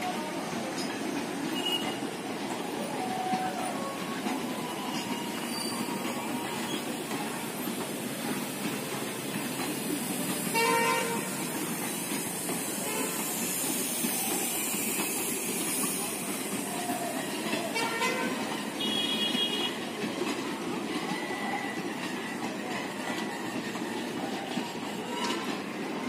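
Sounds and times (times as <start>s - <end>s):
train wheels rumbling on track: 0.0s - 26.0s.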